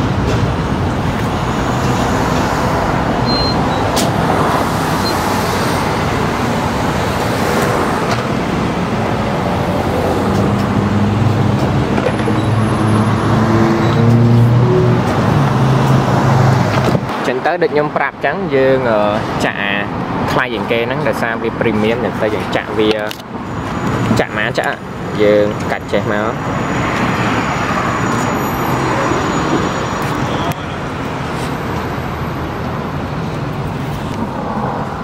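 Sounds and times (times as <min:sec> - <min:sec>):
vehicle engine hum: 0:00.0 - 0:17.2, 0:21.7 - 0:35.0
cars passing on street: 0:00.0 - 0:35.0
short high keypad beeps: 0:03.2 - 0:03.8.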